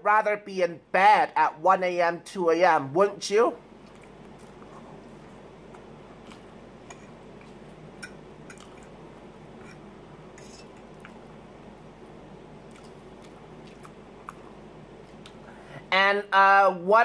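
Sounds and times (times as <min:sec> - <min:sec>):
low room hum: 0:00.0 - 0:17.0
wet chewing: 0:03.8 - 0:05.0, 0:05.7 - 0:06.6, 0:12.6 - 0:15.4.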